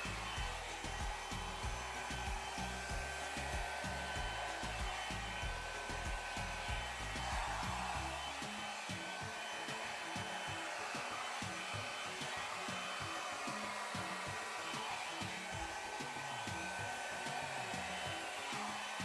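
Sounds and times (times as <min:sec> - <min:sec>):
hair dryer running: 0:00.0 - 0:19.0.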